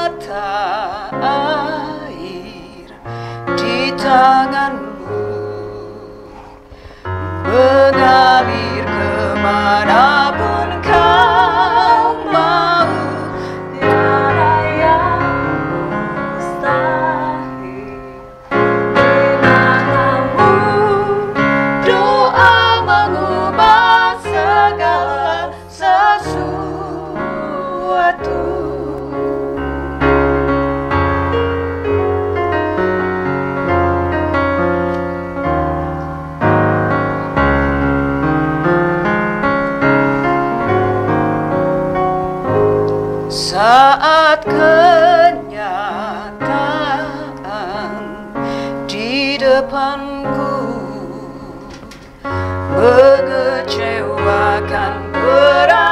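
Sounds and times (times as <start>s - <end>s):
women singing: 0.0s - 6.6s, 7.4s - 30.1s, 43.3s - 55.9s
electronic keyboard chords: 0.0s - 55.9s.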